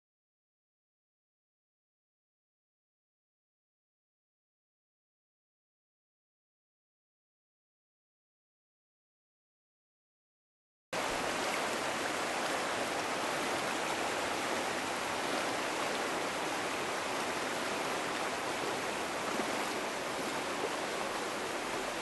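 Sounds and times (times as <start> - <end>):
river water rushing over stones: 11.0 - 22.0.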